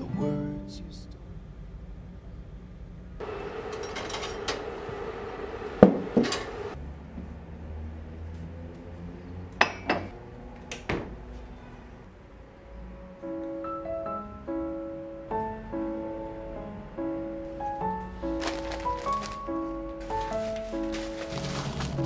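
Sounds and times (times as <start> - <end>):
dishes and glassware clinking: 9.6 - 10.1.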